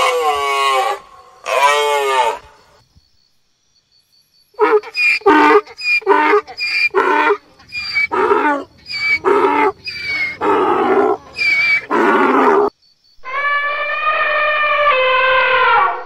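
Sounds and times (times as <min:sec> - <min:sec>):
donkey braying: 0:04.6 - 0:16.0
elephant trumpeting: 0:04.6 - 0:16.0.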